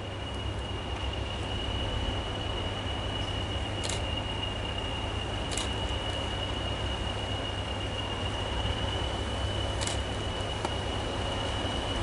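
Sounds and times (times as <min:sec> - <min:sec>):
distant diesel locomotive rumble: 0:00.0 - 0:12.0.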